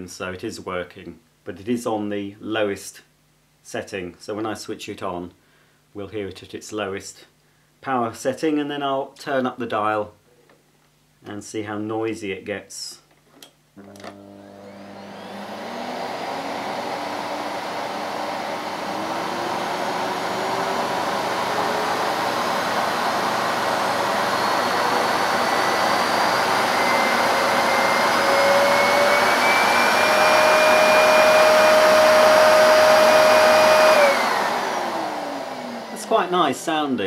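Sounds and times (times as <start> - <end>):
vacuum cleaner motor whine: 13.8 - 36.7.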